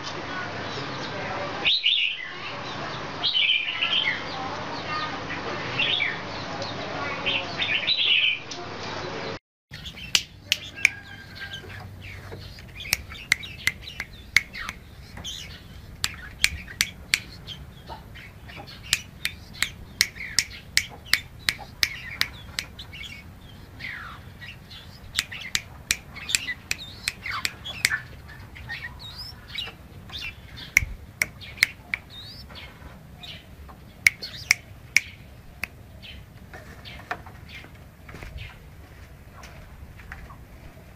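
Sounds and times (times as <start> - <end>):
bird singing: 0.6 - 8.6, 9.2 - 38.6
sharp bird clicks: 9.7 - 33.4, 34.0 - 35.9
bird chirps and whistles: 9.8 - 17.6, 18.8 - 32.5, 34.1 - 35.2.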